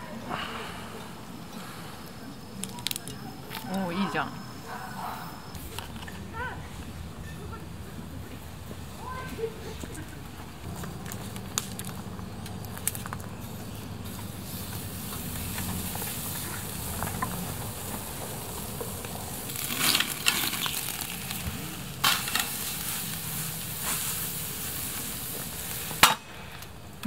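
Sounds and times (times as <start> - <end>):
steak sizzling on a grill: 13.4 - 27.0.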